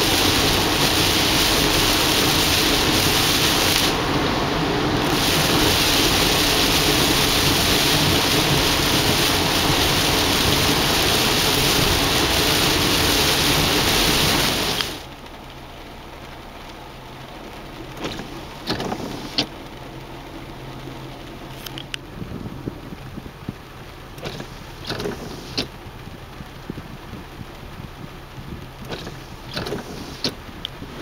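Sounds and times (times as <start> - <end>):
tyre spray: 0.0 - 15.1, 18.0 - 19.6, 24.2 - 25.8, 26.6 - 31.0
heavy rain on car windshield: 0.0 - 31.0.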